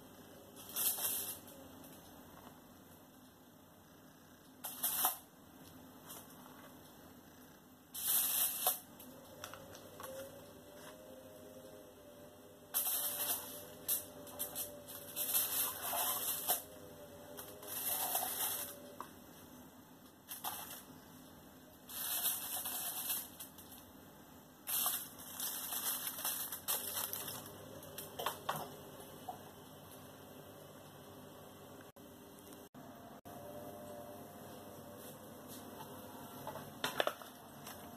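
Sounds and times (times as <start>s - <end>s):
foil and baking paper crinkling: 21.9s - 23.7s, 24.7s - 28.1s.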